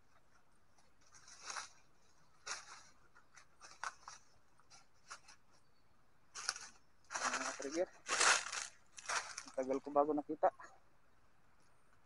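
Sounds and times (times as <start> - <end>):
dry leaves rustling: 0.7 - 5.6, 6.3 - 10.1.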